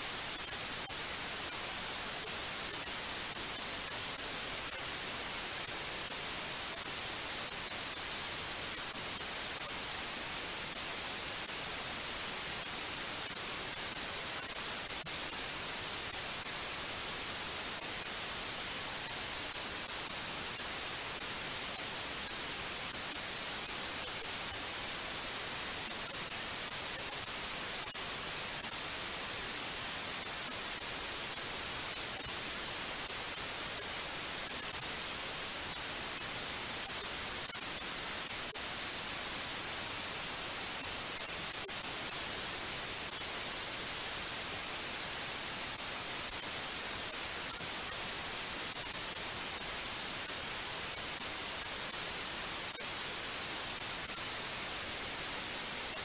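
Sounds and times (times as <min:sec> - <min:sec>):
white noise hiss: 0:00.0 - 0:56.0.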